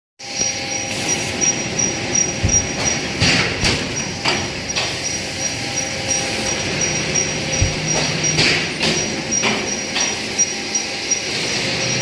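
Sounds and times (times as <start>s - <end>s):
high pulsing whine: 0.2s - 12.0s
machine clattering: 1.1s - 11.2s
sharp knocks: 2.1s - 5.0s, 6.8s - 10.2s.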